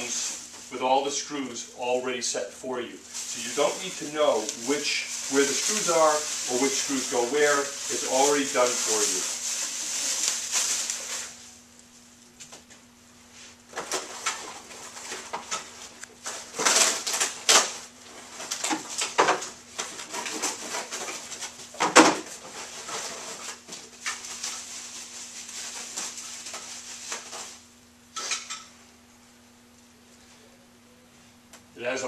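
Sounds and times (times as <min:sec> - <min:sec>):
faint steady hum: 0:00.0 - 0:32.0
plastic wrapping crinkling: 0:03.0 - 0:12.4, 0:13.8 - 0:27.7.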